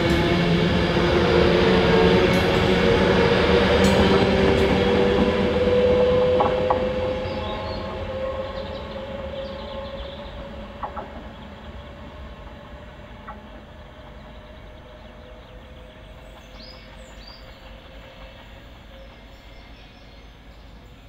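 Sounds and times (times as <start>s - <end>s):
electric train rumble: 0.0s - 21.0s
train whine: 0.0s - 21.0s
birds chirping: 6.4s - 21.0s.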